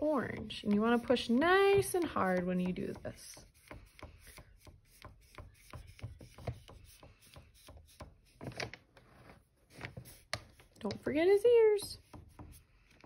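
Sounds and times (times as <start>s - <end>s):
crayon scratching on paper: 0.0s - 8.5s, 11.8s - 12.7s.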